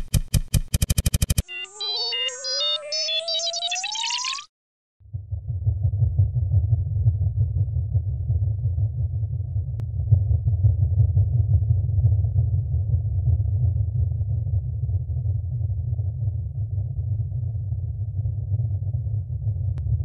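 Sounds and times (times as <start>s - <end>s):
deep droning rumble: 5.1s - 20.0s.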